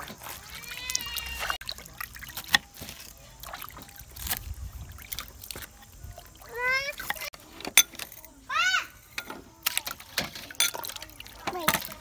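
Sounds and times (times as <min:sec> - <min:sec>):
water sloshing in a basin: 0:00.0 - 0:12.0.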